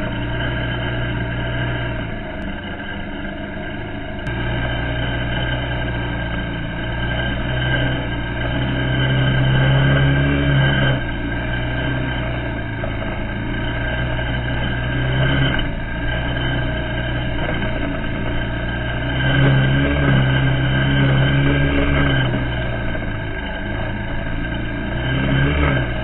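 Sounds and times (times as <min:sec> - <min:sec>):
quad bike engine running: 0:00.0 - 0:26.0.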